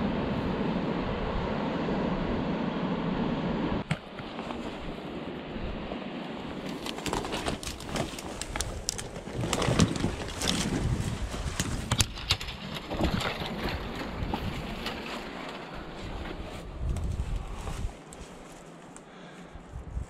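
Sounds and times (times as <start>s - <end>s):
dry branches crackling and snapping: 6.5s - 19.4s.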